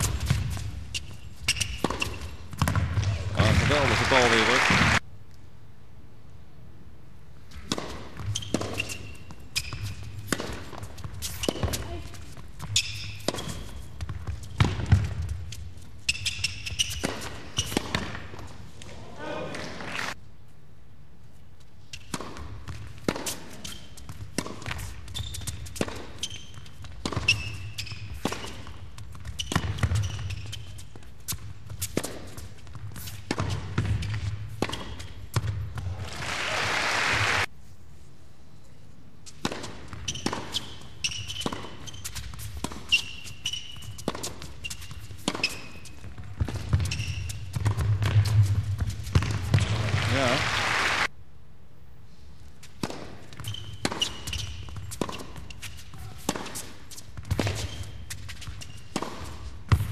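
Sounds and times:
racket hitting tennis ball: 0.0 - 3.6, 7.5 - 18.5, 22.0 - 36.0, 39.3 - 49.9, 52.6 - 59.9
shoes squeaking on court: 0.0 - 4.5, 7.5 - 18.9, 21.6 - 36.0, 39.2 - 50.4, 52.5 - 59.9
crowd applause: 3.4 - 5.0, 36.0 - 37.5, 49.6 - 51.1.

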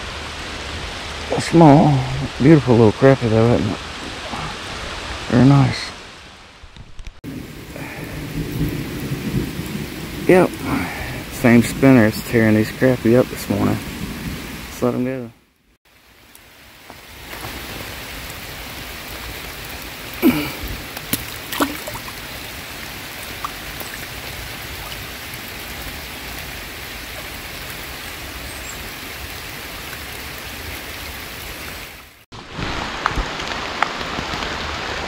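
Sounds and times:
rain falling on a pond: 0.0 - 35.0.

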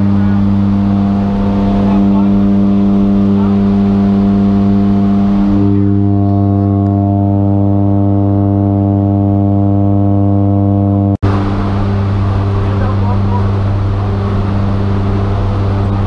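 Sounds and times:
rushing air noise: 0.0 - 10.4, 11.2 - 16.0
turboprop engine drone in cabin: 0.0 - 16.0.

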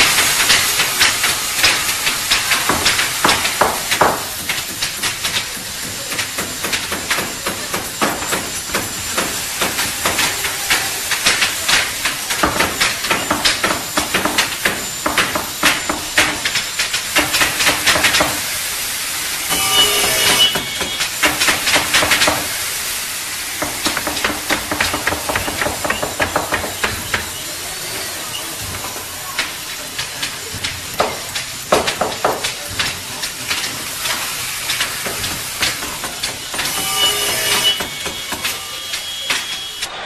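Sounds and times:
steady hiss: 0.0 - 40.0
power saw whining: 19.3 - 21.2, 35.8 - 40.0.

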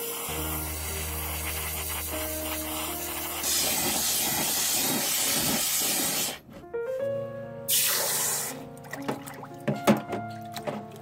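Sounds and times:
hot metal quenched in water: 0.0 - 6.4
gas torch flame hissing: 0.0 - 6.5, 7.7 - 8.6.

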